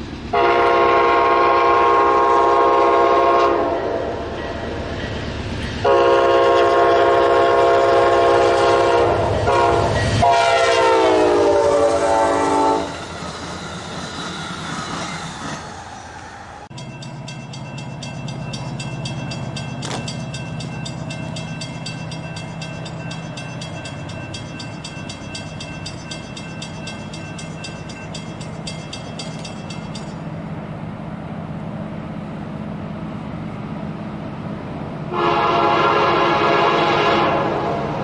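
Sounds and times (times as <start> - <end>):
diesel locomotive engines droning: 0.0 - 38.0
locomotive air horn chord: 0.3 - 4.2, 5.8 - 13.0, 35.1 - 37.9
bell ringing rapidly: 16.8 - 30.2.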